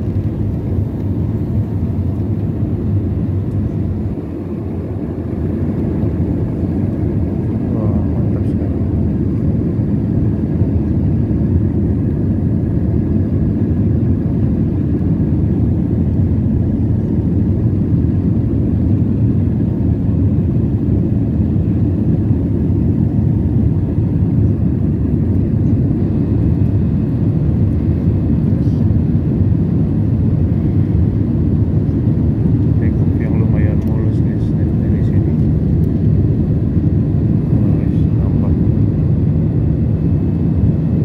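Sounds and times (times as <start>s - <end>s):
airliner cabin rumble: 0.0s - 41.0s.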